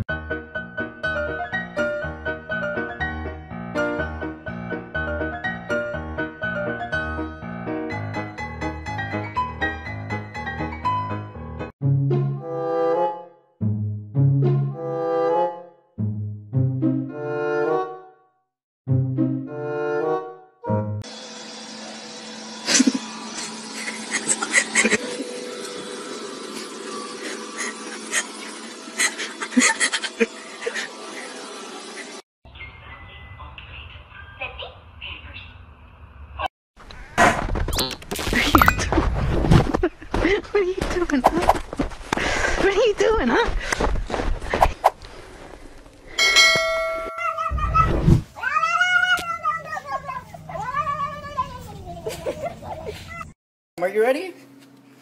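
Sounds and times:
robot vacuum cleaner humming: 21.1s - 29.4s
bell-like ringing tone: 46.2s - 47.4s
cat yowling: 47.1s - 51.1s.

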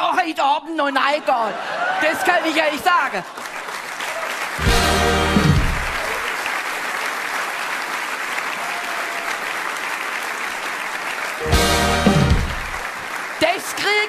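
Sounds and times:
audience applauding: 1.7s - 14.0s
band music: 4.6s - 6.2s, 11.4s - 12.9s.

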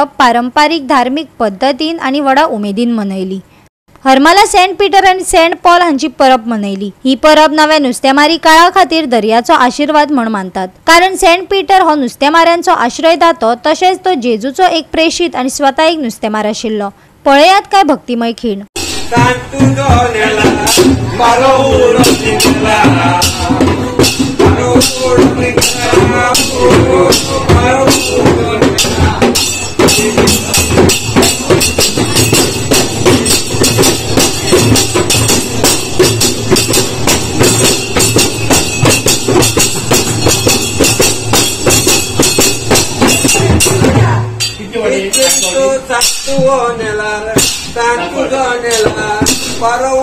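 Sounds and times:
clay-pot drums beaten by hand: 18.8s - 48.0s, 48.7s - 50.0s
voices singing: 18.9s - 31.9s, 43.2s - 50.0s
high metallic ringing: 20.2s - 46.4s.

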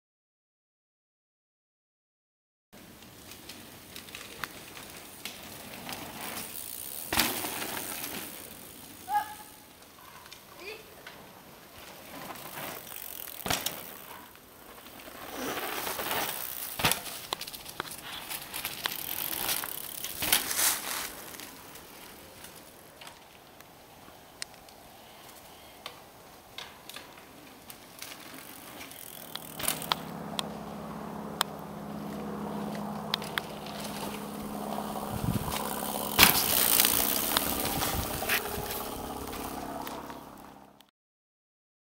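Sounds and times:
bike tyres rolling over dirt: 2.8s - 40.7s
bike knocks and clicks: 12.6s - 14.1s, 35.4s - 39.4s
steady low hum: 27.1s - 40.8s.

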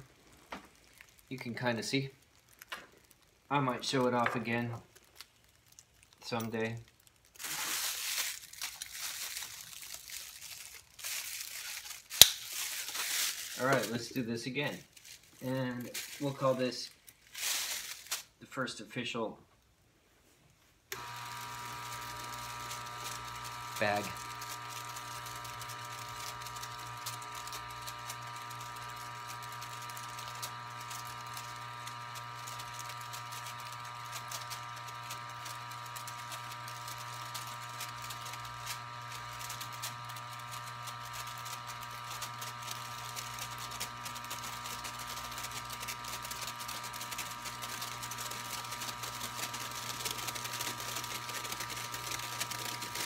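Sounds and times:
air pump humming: 9.1s - 14.2s, 20.9s - 53.0s.

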